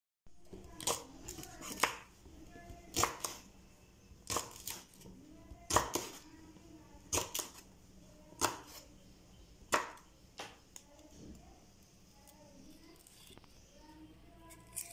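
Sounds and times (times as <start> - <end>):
knife chopping on wooden board: 0.8 - 2.1, 2.9 - 3.4, 4.2 - 4.9, 5.7 - 6.2, 7.1 - 7.6, 8.4 - 8.8, 9.7 - 10.6.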